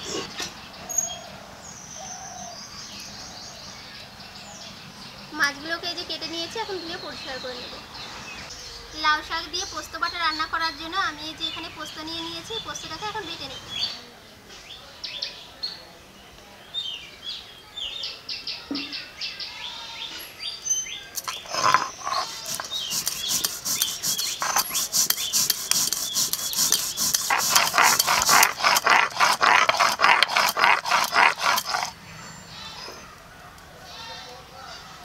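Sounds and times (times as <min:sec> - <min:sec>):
birds chirping: 0:00.0 - 0:14.1, 0:16.6 - 0:35.0
stone grinding scrape: 0:21.2 - 0:32.0.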